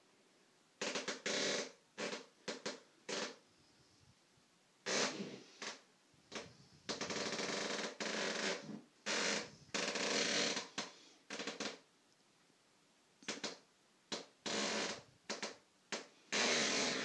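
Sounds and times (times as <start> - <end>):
floorboards creaking under footsteps: 0.8 - 3.4, 4.9 - 11.8, 13.2 - 17.0.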